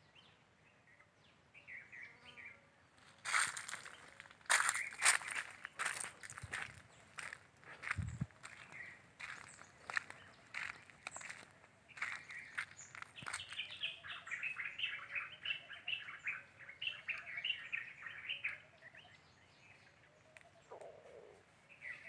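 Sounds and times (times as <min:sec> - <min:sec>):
small birds chirping: 0:00.0 - 0:22.0
footsteps on dry ground: 0:03.0 - 0:14.6.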